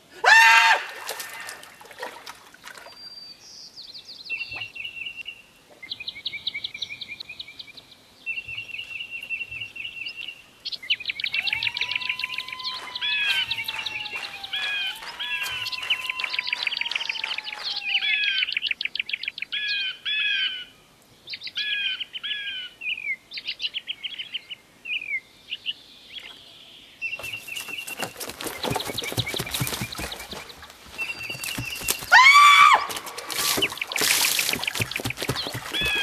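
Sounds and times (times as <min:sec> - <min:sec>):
splash of water: 0:00.6 - 0:03.0, 0:32.8 - 0:36.0
small birds chirping: 0:02.8 - 0:36.0.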